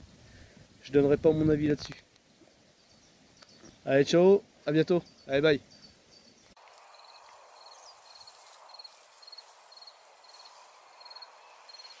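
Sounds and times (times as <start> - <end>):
outdoor hiss: 0.0 - 12.0
cricket chirping: 5.0 - 12.0.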